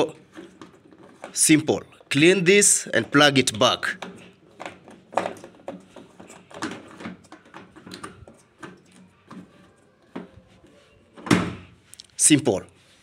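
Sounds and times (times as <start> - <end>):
plastic cap clicking and scraping: 0.2 - 10.4.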